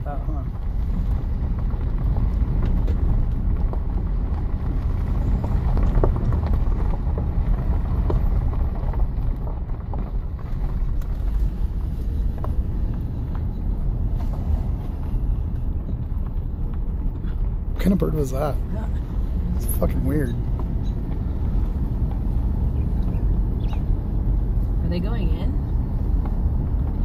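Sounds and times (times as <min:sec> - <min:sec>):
car road and engine rumble: 0:00.0 - 0:27.0
wind noise on microphone: 0:00.5 - 0:17.7.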